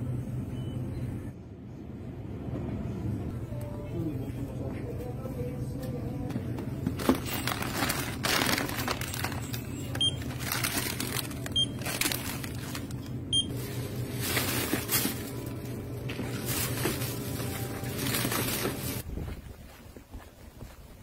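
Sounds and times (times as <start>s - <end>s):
packaging and plastic bag rustling: 6.8s - 19.0s
barcode scanner beeps: 9.6s - 10.4s, 11.5s - 12.1s, 13.3s - 13.5s.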